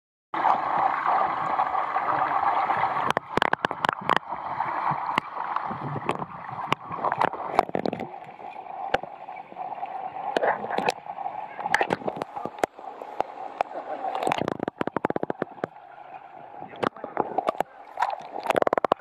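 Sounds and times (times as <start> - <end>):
muffled underwater rushing: 0.4 - 19.0
underwater clicks and knocks: 2.8 - 9.1, 10.3 - 11.0, 11.6 - 15.8, 16.7 - 19.0.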